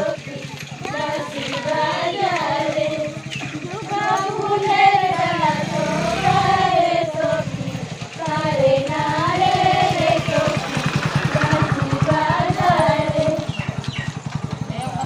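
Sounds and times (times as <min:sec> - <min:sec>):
women singing in unison: 0:00.0 - 0:13.8.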